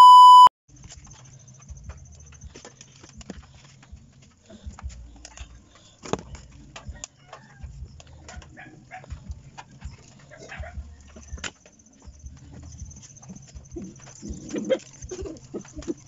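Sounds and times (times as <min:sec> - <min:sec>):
animal calls: 0:12.6 - 0:16.0.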